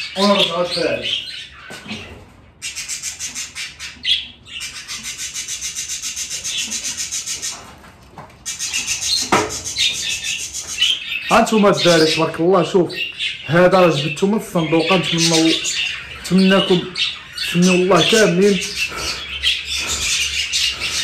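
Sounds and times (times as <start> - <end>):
budgerigars chirping: 0.0 - 7.7, 8.4 - 21.0
knock on wooden nest box: 9.3 - 9.6.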